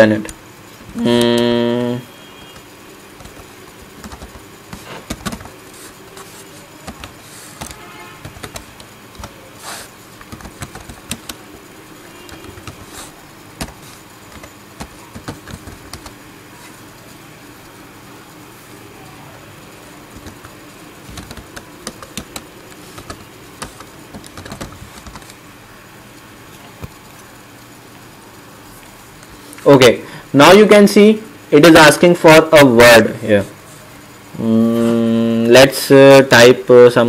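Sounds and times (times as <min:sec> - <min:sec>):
steady low hum: 0:00.0 - 0:37.0
computer keyboard typing: 0:00.2 - 0:16.3, 0:19.7 - 0:25.4.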